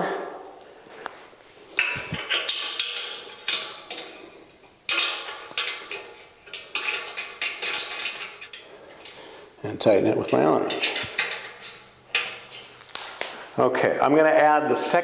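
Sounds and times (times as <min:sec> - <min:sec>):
metal bolt clinking and scraping: 0:01.7 - 0:13.0.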